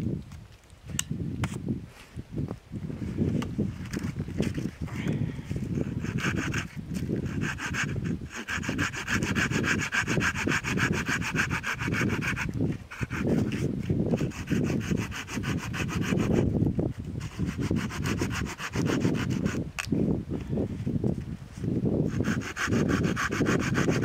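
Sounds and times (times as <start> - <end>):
hand saw cutting wood: 5.8 - 16.5, 17.2 - 19.6, 22.1 - 24.0.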